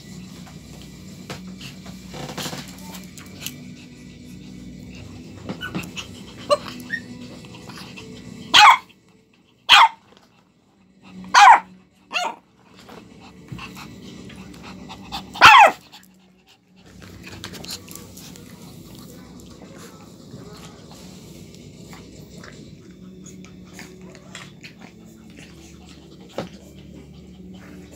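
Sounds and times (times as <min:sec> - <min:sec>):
puppy barking: 0:08.5 - 0:08.9, 0:09.7 - 0:10.1, 0:11.3 - 0:12.4, 0:15.2 - 0:15.8.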